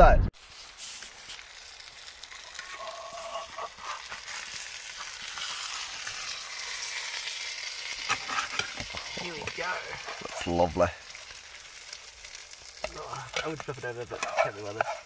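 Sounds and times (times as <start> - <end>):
food sizzling in a pan: 0.4 - 15.0.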